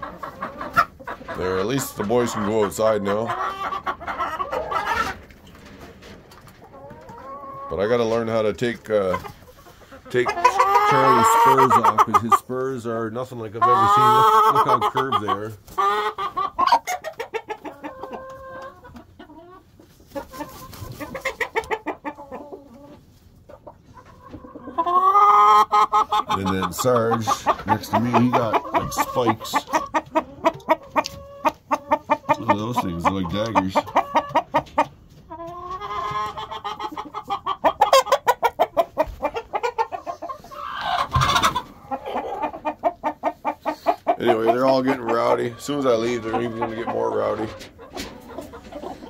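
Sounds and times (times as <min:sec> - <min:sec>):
chickens clucking: 0:00.0 - 0:49.0
chicken drawn-out call: 0:09.7 - 0:12.2, 0:33.7 - 0:45.6.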